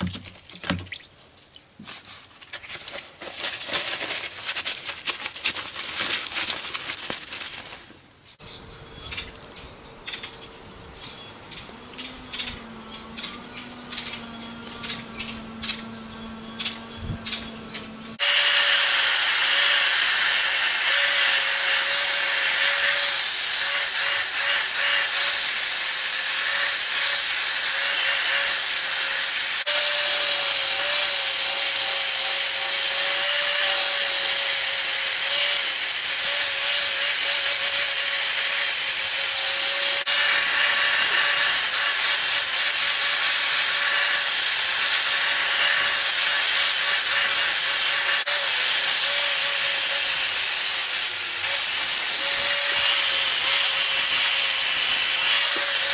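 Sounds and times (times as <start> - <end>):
wire brush scraping steel: 1.8 - 7.9, 10.1 - 55.9
drill motor whine: 11.2 - 55.9.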